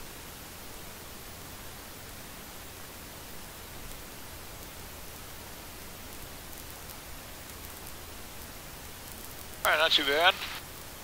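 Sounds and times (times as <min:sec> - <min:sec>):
plane cabin hiss: 0:09.7 - 0:10.7.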